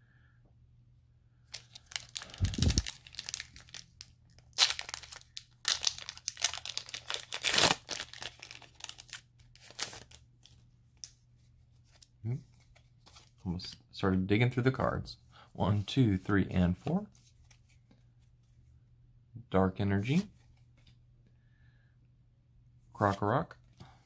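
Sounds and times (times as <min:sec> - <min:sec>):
foil wrapper crinkling and tearing: 0:01.5 - 0:11.1.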